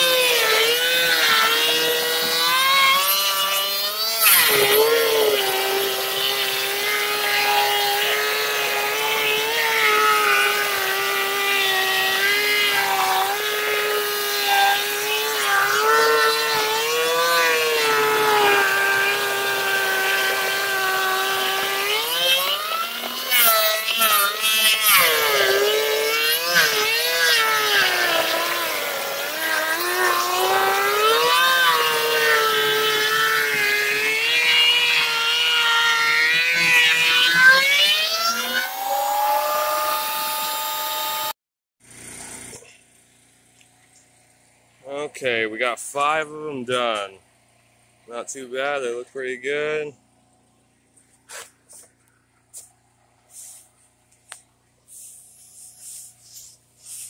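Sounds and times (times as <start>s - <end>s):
thickness planer motor whine: 0.0s - 41.4s.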